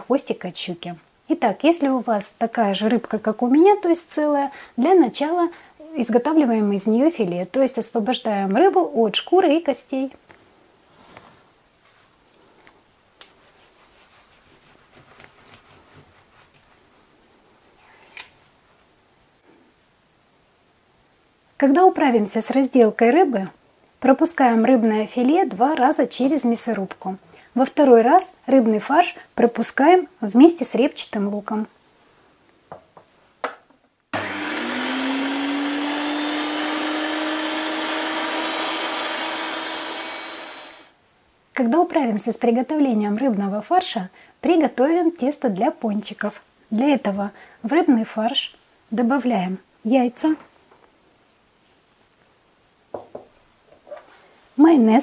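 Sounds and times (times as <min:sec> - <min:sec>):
electric meat grinder motor whine: 0:34.2 - 0:40.9.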